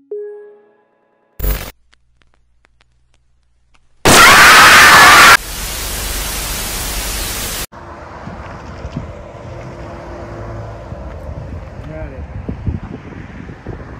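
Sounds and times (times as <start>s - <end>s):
tv static hiss: 1.4s - 7.7s
short burst of sound: 4.1s - 5.9s.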